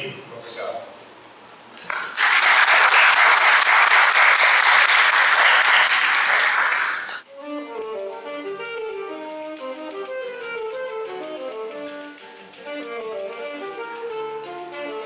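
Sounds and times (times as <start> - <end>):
audience applauding: 1.9 - 7.2.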